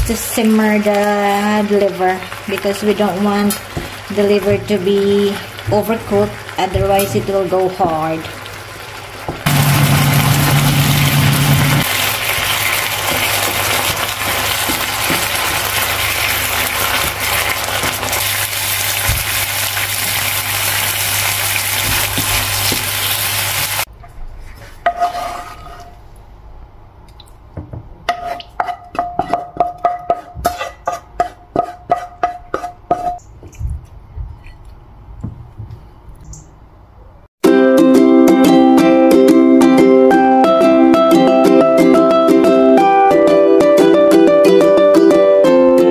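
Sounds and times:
liver sizzling in a frying pan: 0.4s - 23.9s.

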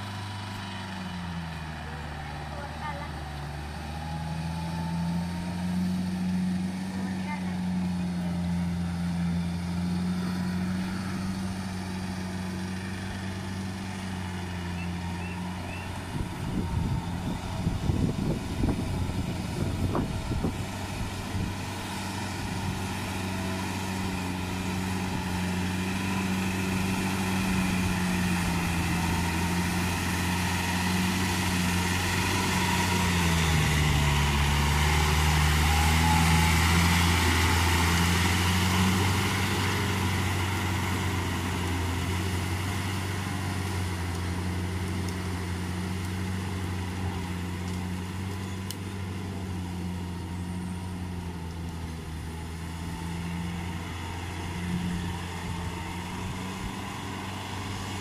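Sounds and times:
tractor engine running: 0.0s - 58.0s
rough irregular rumbling: 4.6s - 58.0s.

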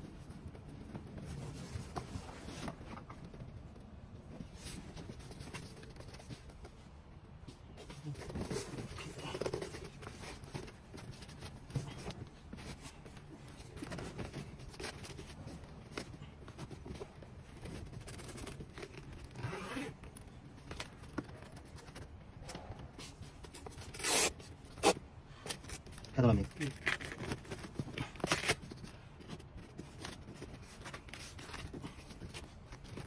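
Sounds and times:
fabric rubbing and scraping: 0.0s - 20.1s
zip-like rasps: 19.4s - 19.9s.

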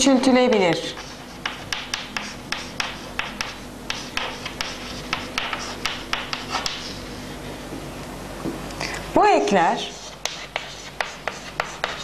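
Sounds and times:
chalk tapping on board: 0.5s - 7.0s, 9.8s - 12.0s
chalk scraping on chalkboard: 0.6s - 7.2s, 9.8s - 12.0s.

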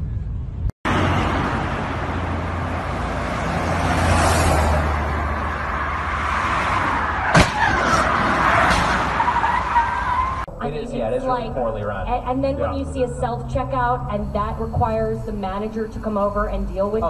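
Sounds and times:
highway traffic passing: 0.0s - 17.0s
sharp bang: 7.3s - 9.2s.

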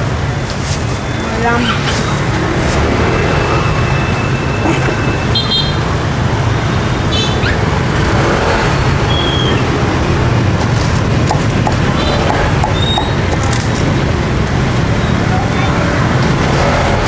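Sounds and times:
road traffic rumble: 0.0s - 17.0s
short high beeps: 9.1s - 9.7s.

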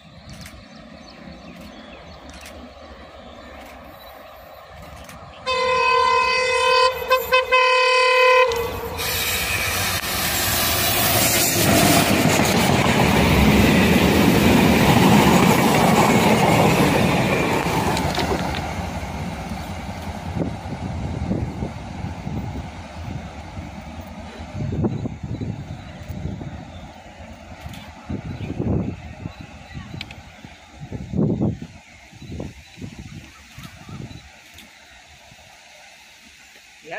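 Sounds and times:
train engine and wheel noise: 0.0s - 36.9s
locomotive horn blast: 5.4s - 9.5s.

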